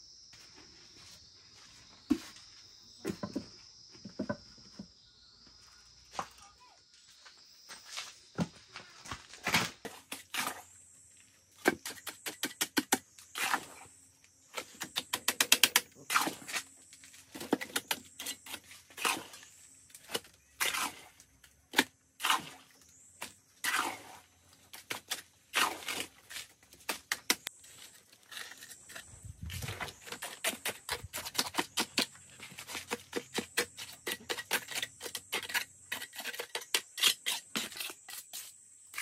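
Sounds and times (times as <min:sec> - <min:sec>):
sharp knocks and taps: 0:03.1 - 0:04.9.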